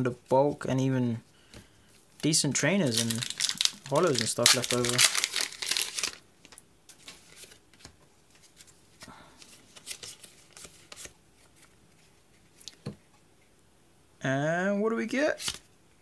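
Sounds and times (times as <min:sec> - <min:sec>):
foil wrapper crinkling: 0:02.8 - 0:07.5.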